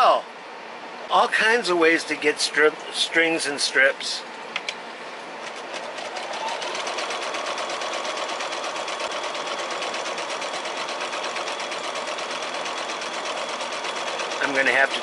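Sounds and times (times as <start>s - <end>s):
sewing machine stitching: 5.4s - 15.0s.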